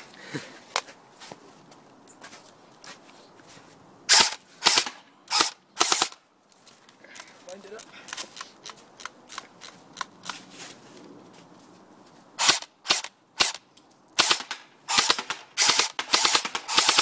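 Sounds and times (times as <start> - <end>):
airsoft gun firing: 4.1 - 6.2, 12.4 - 13.6, 14.2 - 17.0.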